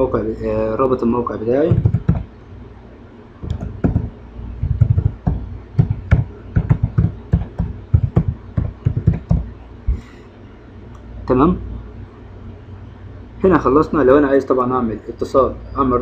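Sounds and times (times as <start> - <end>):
keyboard typing: 1.7 - 2.3, 3.4 - 9.5.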